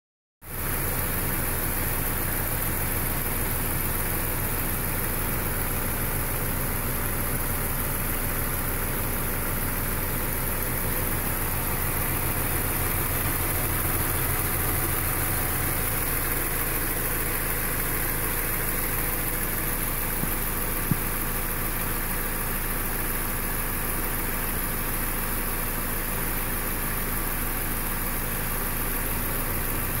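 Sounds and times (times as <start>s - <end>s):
car engine idling: 0.4s - 30.0s.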